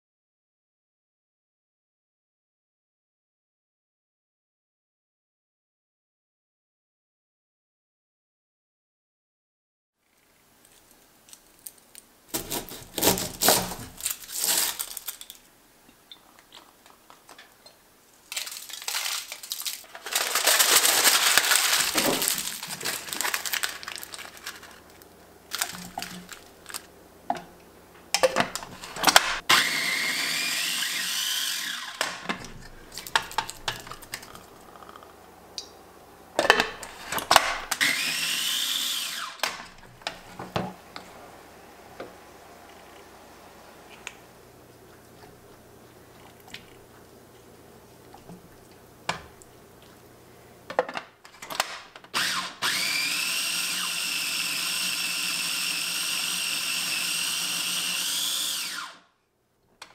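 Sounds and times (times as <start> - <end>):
aluminium foil crinkling: 10.6 - 15.5, 16.4 - 26.9, 32.5 - 35.0
food processor whining: 28.4 - 35.3, 36.6 - 43.3, 52.1 - 59.1.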